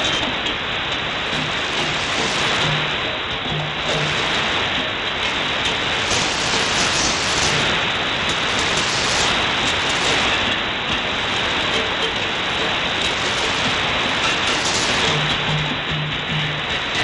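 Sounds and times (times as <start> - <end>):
shortwave radio static hiss: 0.0 - 17.0.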